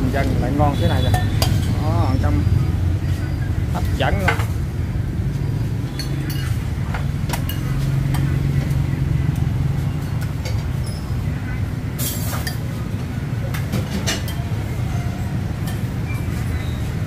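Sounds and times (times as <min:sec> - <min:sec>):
motorbikes passing: 0:00.0 - 0:17.0
street traffic hum: 0:00.0 - 0:17.0
bowls and utensils clinking: 0:00.8 - 0:01.9, 0:05.8 - 0:08.8, 0:13.5 - 0:16.5.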